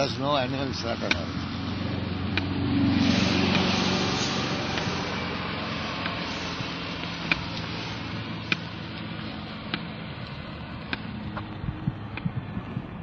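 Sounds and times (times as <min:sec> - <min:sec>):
sharp clicks: 0:02.3 - 0:02.5, 0:04.7 - 0:05.0, 0:07.0 - 0:07.8, 0:08.4 - 0:08.7, 0:09.6 - 0:12.4.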